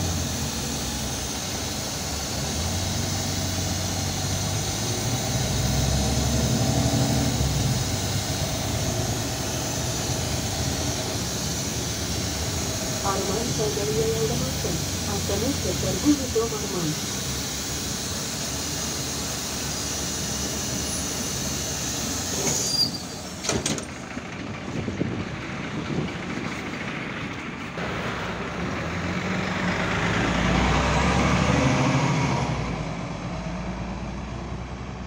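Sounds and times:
bus interior hiss: 0.0 - 24.1
bus engine accelerating: 0.0 - 35.0.

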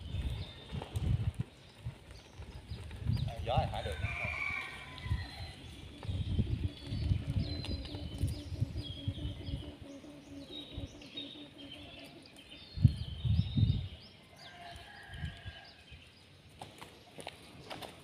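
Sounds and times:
small birds chirping: 0.0 - 18.0
kite hummer droning: 5.2 - 13.9.

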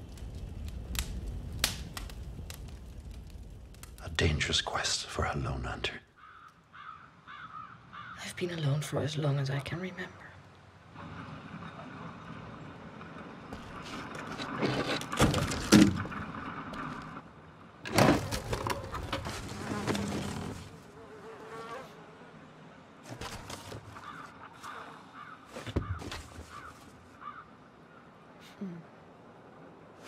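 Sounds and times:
wood boards knocking and clattering: 13.6 - 16.9, 25.5 - 26.8.

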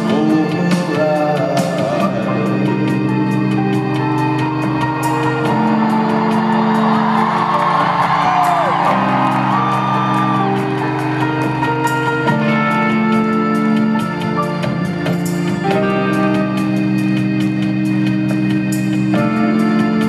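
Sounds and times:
electric guitar: 0.0 - 20.0
keyboard chords: 0.0 - 20.0
crowd whooping and whistling: 4.2 - 12.2.

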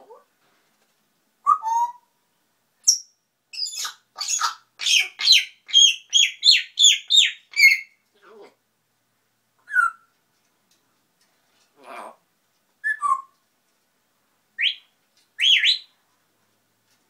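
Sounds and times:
parrot high-pitched whistles: 1.4 - 2.1, 3.6 - 7.9, 9.6 - 10.1, 12.8 - 13.3, 14.6 - 15.9
parrot calling: 2.9 - 8.5, 14.6 - 15.9.

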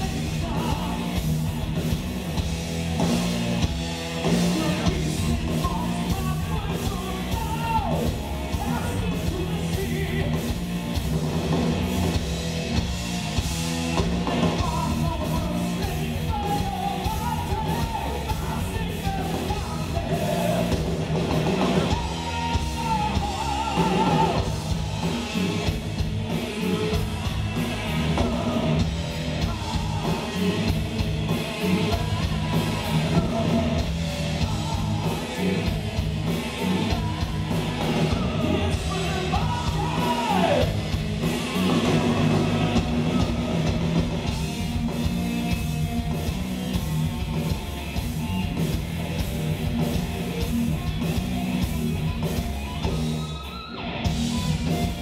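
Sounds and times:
sung vocals: 0.0 - 1.9, 4.2 - 10.6, 14.3 - 44.9
bass guitar: 0.0 - 55.0
distorted electric guitars: 0.0 - 55.0
drums: 0.0 - 55.0.

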